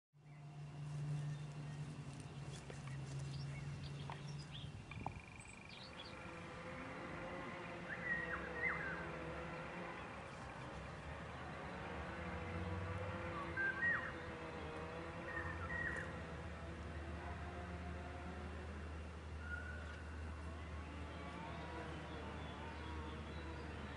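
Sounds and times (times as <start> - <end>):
birds chirping: 0.2 - 23.9.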